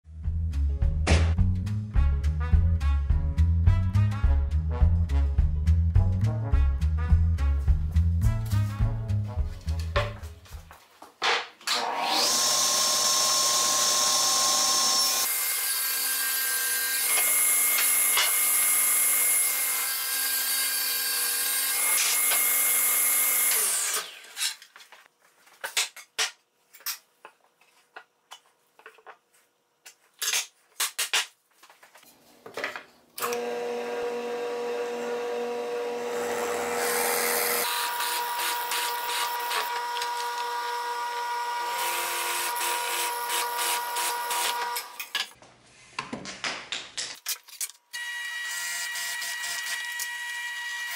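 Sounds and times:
table saw cutting plywood: 11.7s - 24.5s, 33.2s - 45.1s, 48.0s - 50.9s
drill press drilling: 11.9s - 15.3s, 33.2s - 45.0s, 48.0s - 50.9s.

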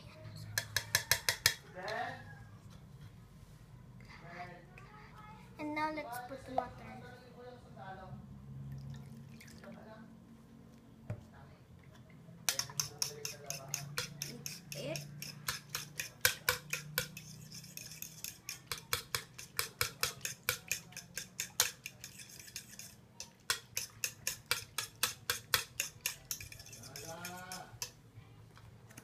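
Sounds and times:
metal spoon whisking in bowl: 0.5s - 1.7s, 12.4s - 28.0s.

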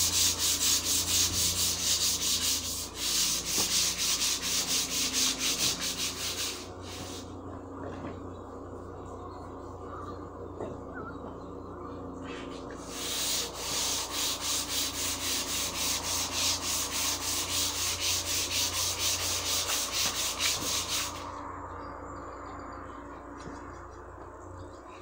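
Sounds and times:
hand sanding with sandpaper: 0.0s - 7.3s, 12.7s - 21.4s.

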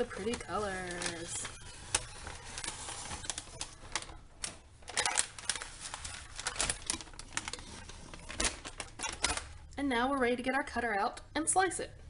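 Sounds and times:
paper crinkling and crackling: 0.0s - 9.6s.

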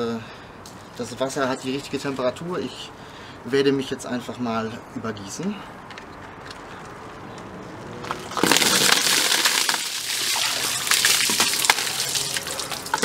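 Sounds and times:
water splashing on person and paving: 8.0s - 13.0s
ice knocking: 8.1s - 11.9s.

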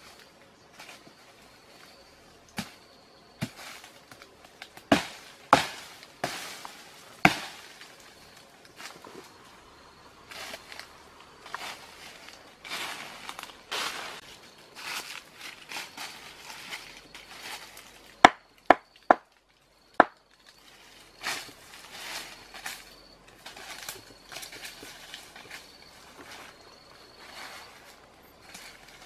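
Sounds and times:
footsteps crunching dry leaves: 2.9s - 18.2s, 20.5s - 29.0s
machete striking wood: 4.9s - 6.4s, 7.2s - 7.8s, 20.0s - 20.2s.

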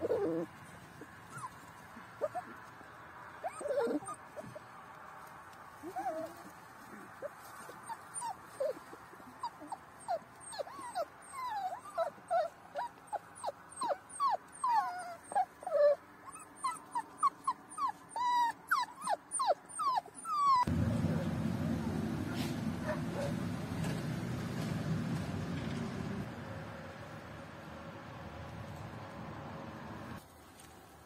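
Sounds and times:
puppies whimpering and whining: 0.0s - 0.5s, 1.3s - 1.6s, 2.2s - 2.6s, 3.4s - 4.7s, 5.8s - 20.7s.

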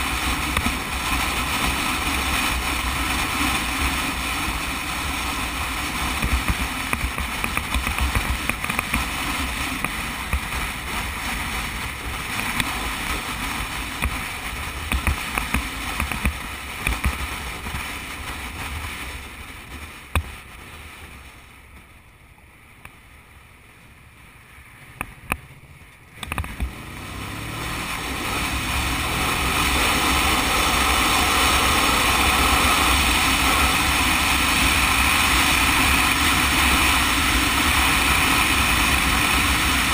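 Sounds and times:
motorcycle engine: 0.0s - 22.0s, 23.0s - 39.9s
wind rush on microphone: 0.0s - 39.9s
sharp clicks: 25.0s - 26.7s.

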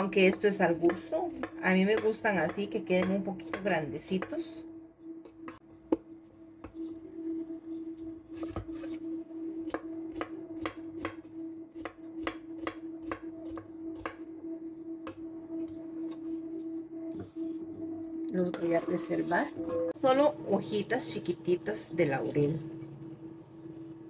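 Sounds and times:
faint steady hum: 0.0s - 24.0s.

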